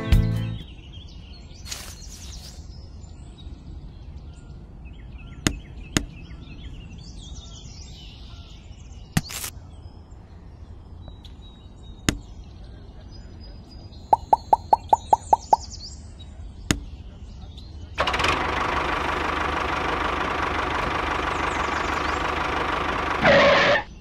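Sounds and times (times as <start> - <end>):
faint chirps: 12.3 - 15.8.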